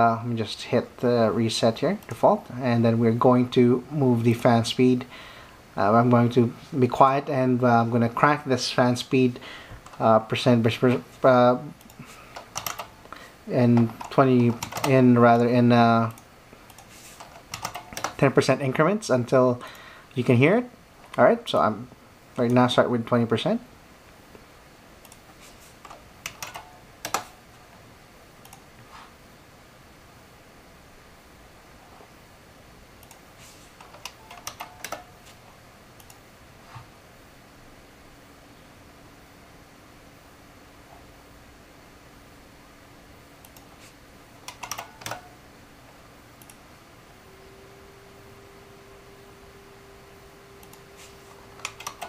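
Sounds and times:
computer cooling fan hum: 0:00.0 - 0:52.0
faint steady hiss: 0:00.0 - 0:52.0
computer mouse clicks: 0:11.8 - 0:12.9, 0:13.8 - 0:15.0, 0:16.1 - 0:18.2, 0:25.0 - 0:27.4, 0:33.0 - 0:33.2, 0:33.8 - 0:35.1, 0:36.0 - 0:36.2, 0:43.4 - 0:43.7, 0:44.4 - 0:45.3, 0:46.4 - 0:46.6, 0:50.6 - 0:51.0, 0:51.6 - 0:52.0.

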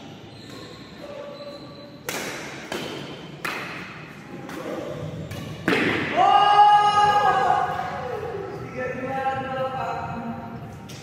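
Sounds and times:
rackets striking shuttlecock: 0:02.0 - 0:06.1.

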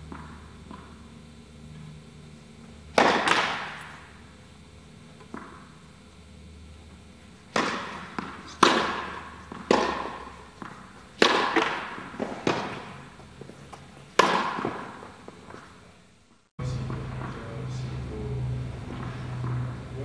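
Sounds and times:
tennis ball struck by rackets: 0:00.1 - 0:01.0, 0:02.9 - 0:04.2, 0:07.5 - 0:13.1, 0:13.7 - 0:15.6.

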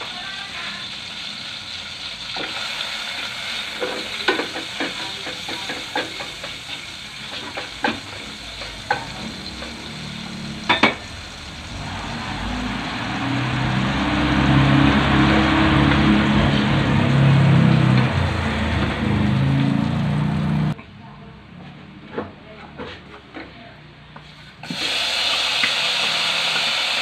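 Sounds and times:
butter sizzling in frying pan: 0:00.0 - 0:20.7, 0:24.6 - 0:27.0.

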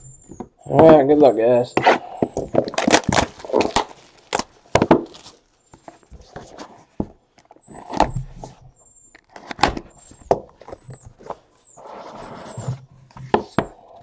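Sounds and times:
cardboard box clicks and knocks: 0:02.2 - 0:07.2
plastic shrink wrap crinkling: 0:02.4 - 0:06.2.

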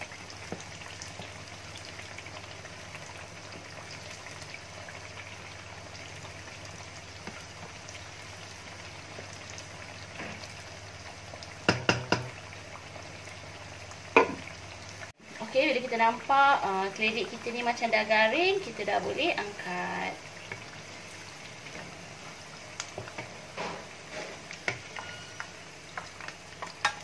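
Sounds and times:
fritters sizzling in hot oil: 0:00.0 - 0:27.0
sharp knocks: 0:11.7 - 0:12.3.

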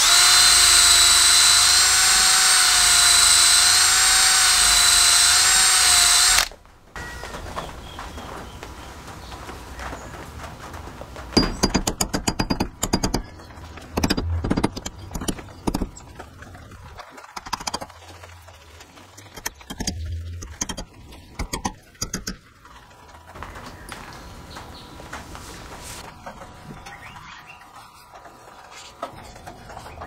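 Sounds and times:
sharp metallic clicks and knocks: 0:11.3 - 0:18.5, 0:19.1 - 0:24.0.

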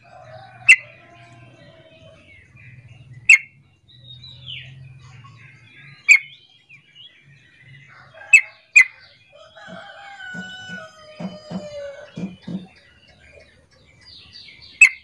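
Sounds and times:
soft bird chirps: 0:00.0 - 0:15.0
long drawn-out bird call: 0:07.9 - 0:12.9.

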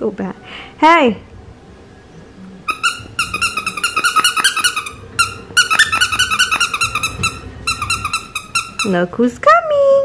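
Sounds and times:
squeaky toy squeaks: 0:02.7 - 0:09.1.

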